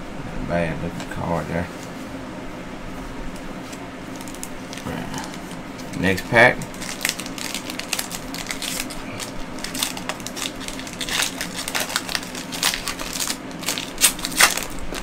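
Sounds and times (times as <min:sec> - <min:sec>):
wrapper being torn and crinkled: 0:04.1 - 0:15.0.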